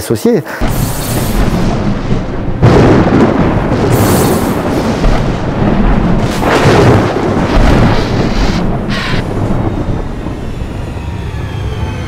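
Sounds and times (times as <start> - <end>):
thunder rumbling: 0.6 - 12.0.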